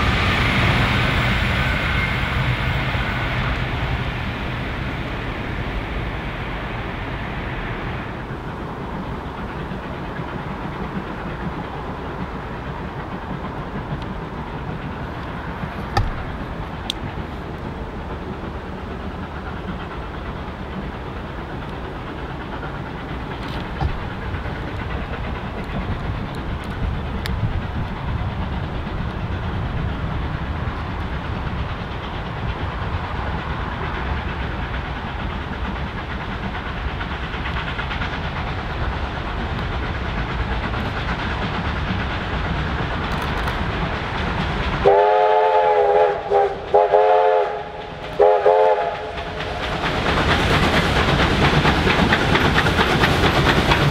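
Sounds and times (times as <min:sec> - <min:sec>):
steam locomotive rumbling: 0:00.0 - 0:53.9
steam whistle blasts: 0:44.8 - 0:49.2.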